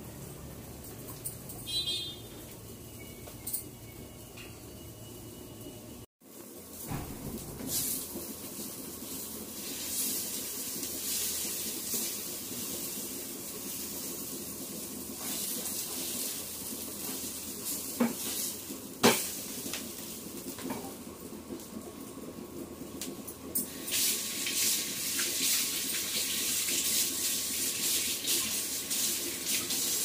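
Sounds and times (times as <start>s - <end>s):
food sizzling in a pan: 6.2s - 30.0s.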